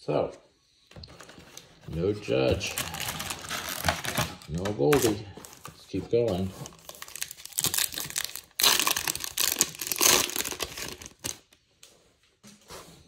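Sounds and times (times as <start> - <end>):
foil wrapper tearing and crinkling: 2.6 - 5.6, 6.7 - 11.5.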